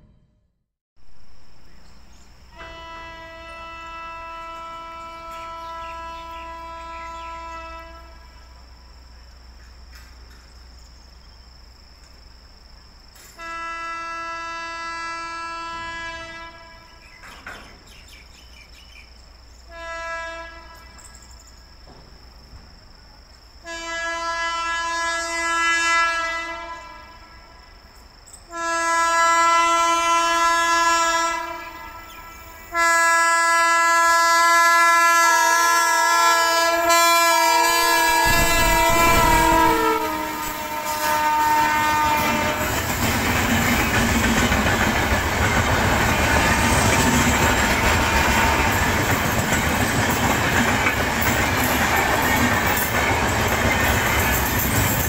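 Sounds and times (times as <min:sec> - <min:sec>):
deep rumble of train arriving: 0:01.0 - 0:55.0
train air horn blasts: 0:02.5 - 0:08.6, 0:13.3 - 0:17.2, 0:19.7 - 0:21.4, 0:23.6 - 0:27.8, 0:28.5 - 0:43.2, 0:46.2 - 0:49.4.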